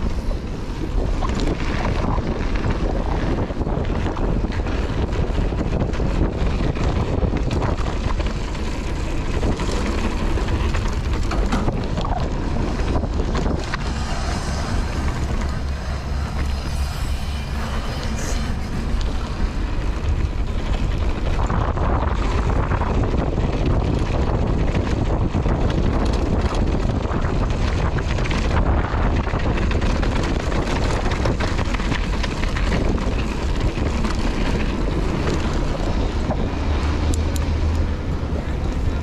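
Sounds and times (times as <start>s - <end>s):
bike clicks and clatter: 0.0s - 16.9s, 17.6s - 39.0s
wind rush on microphone: 0.0s - 39.0s.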